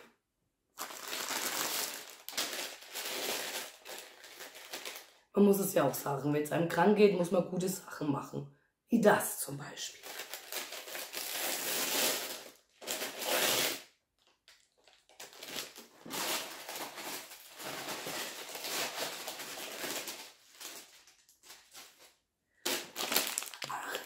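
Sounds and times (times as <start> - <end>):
paper bag crinkling and tearing: 0.8 - 5.2, 10.0 - 24.0.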